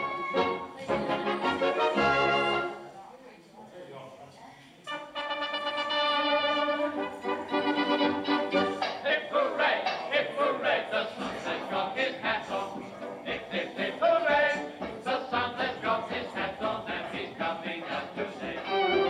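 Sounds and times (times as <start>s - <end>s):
recorded song with singing: 0.0s - 2.8s, 8.1s - 19.0s.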